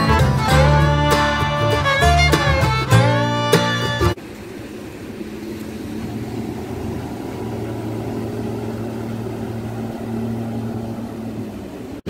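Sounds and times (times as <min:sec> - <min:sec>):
outboard motorboat engine running: 0:00.0 - 0:12.0.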